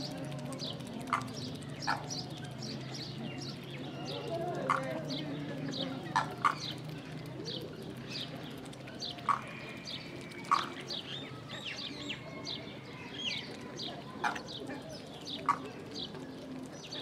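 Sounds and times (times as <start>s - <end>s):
birds calling and chirping: 0.0s - 17.0s
sharp bird calls: 9.1s - 16.1s.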